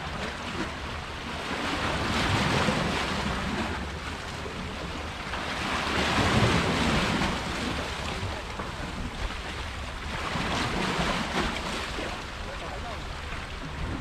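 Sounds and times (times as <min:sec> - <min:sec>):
wind on microphone: 0:00.0 - 0:14.0.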